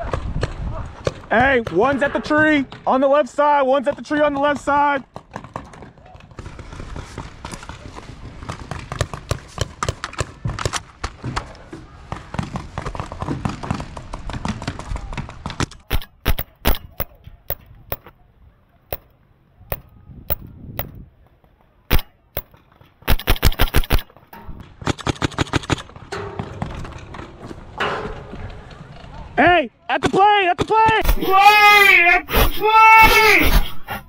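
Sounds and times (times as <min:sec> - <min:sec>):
busy rustling noise: 0:05.4 - 0:29.9, 0:31.0 - 0:34.0
paintball markers firing: 0:13.7 - 0:18.1, 0:21.9 - 0:24.2.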